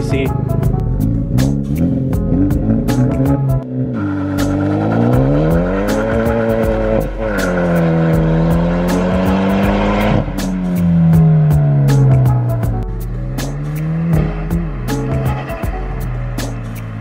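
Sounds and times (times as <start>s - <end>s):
car engine accelerating hard: 0.4s - 17.0s.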